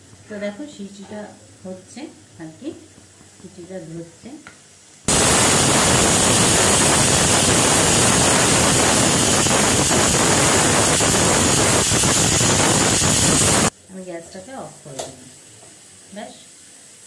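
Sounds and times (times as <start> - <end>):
pressure cooker whistle hissing: 5.1 - 13.7.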